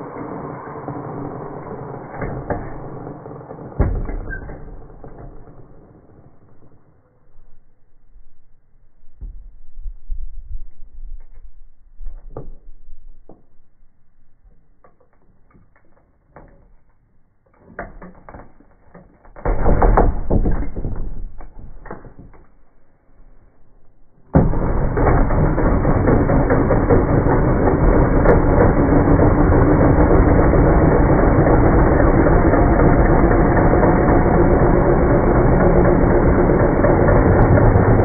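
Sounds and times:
jigsaw cutting plywood: 24.4s - 38.0s.

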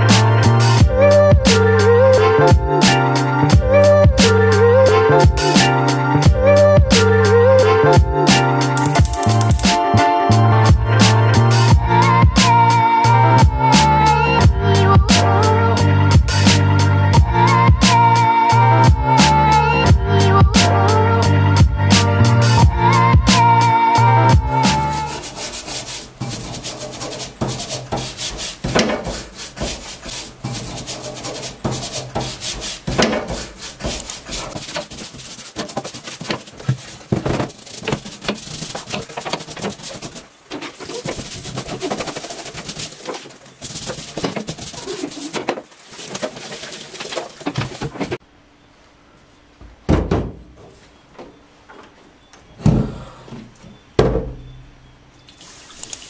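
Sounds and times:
brush scrubbing metal: 24.6s - 48.2s
knocks: 27.4s - 29.8s, 31.6s - 34.0s, 49.6s - 51.4s, 52.6s - 54.6s.

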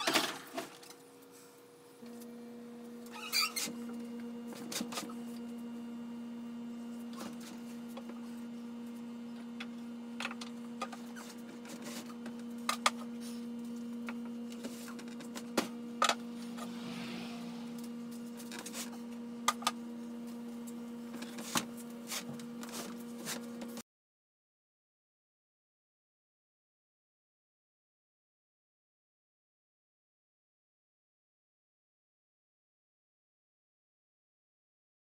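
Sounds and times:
steady electrical hum: 0.1s - 23.8s
frame scraping across table: 16.1s - 19.0s.

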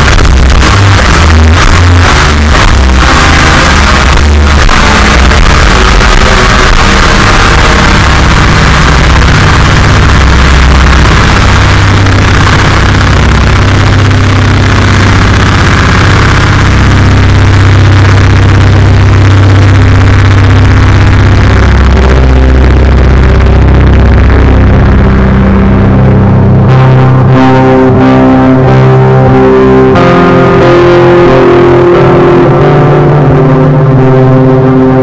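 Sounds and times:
heavily distorted noise music: 0.0s - 35.0s
low rumble: 0.0s - 35.0s.

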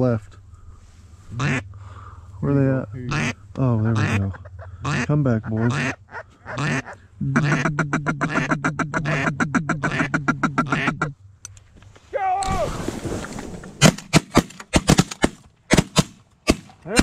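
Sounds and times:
duck call chatter: 1.4s - 1.7s, 3.1s - 11.2s
shotgun shots: 13.8s - 17.0s.

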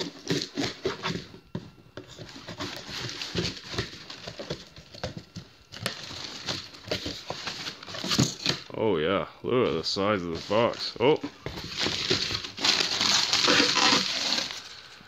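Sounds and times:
cardboard box scraping and rustling: 0.0s - 5.1s, 5.7s - 8.6s, 10.2s - 14.7s
knife slitting tape and cardboard: 11.9s - 14.6s.

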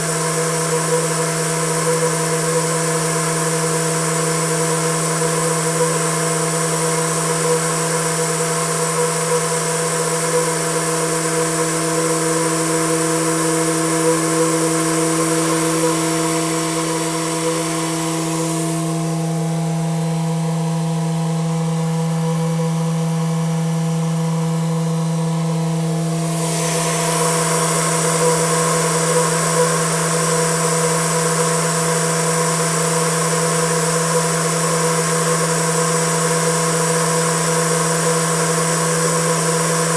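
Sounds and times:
turbine humming: 0.0s - 39.9s
compressed air hissing: 26.1s - 30.8s.

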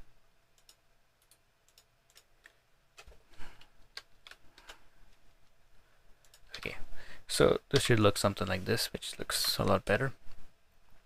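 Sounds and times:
keyboard and mouse clicks: 0.6s - 4.8s, 6.2s - 6.8s, 7.7s - 8.1s.

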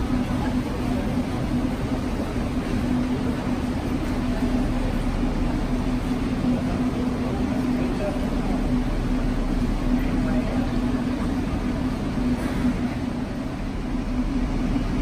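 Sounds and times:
train equipment humming: 0.0s - 15.0s.

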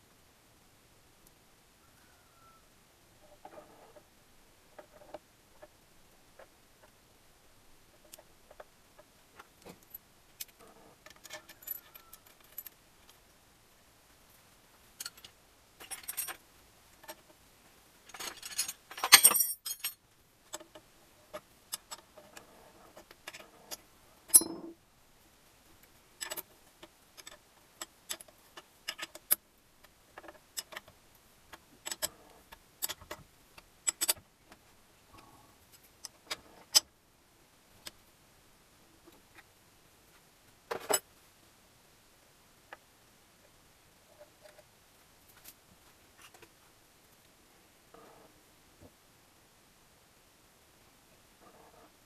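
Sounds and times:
metal parts clinking and clicking: 9.8s - 12.8s, 15.0s - 16.4s, 18.1s - 20.6s, 23.3s - 24.7s
parts jangling: 15.0s - 16.4s, 18.1s - 20.0s.

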